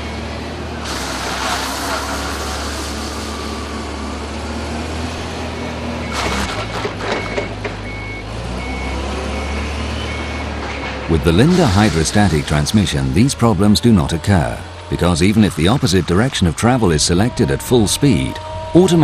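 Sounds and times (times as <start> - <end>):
forklift engine running: 0.0 - 19.0
hissing burst: 0.8 - 3.8
reversing alarm beeping: 5.5 - 19.0.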